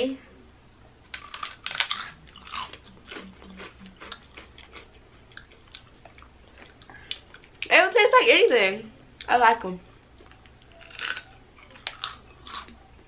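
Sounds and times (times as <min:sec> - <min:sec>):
crunchy chewing of fried chips: 0:01.0 - 0:07.7, 0:09.9 - 0:13.0.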